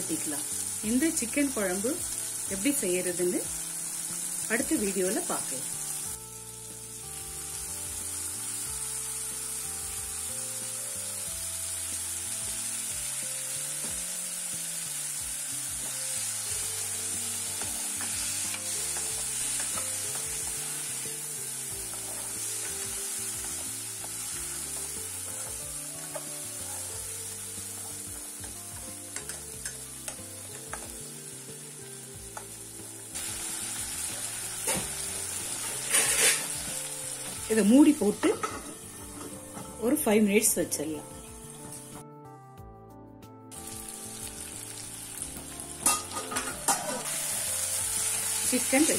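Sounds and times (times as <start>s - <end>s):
food sizzling in oil: 0.0s - 42.0s, 43.5s - 48.9s
spatula stirring and scraping: 35.8s - 36.6s.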